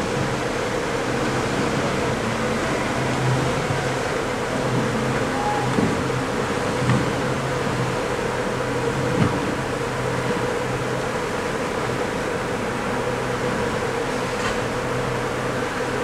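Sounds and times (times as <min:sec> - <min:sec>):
ship engine drone: 0:00.0 - 0:16.0.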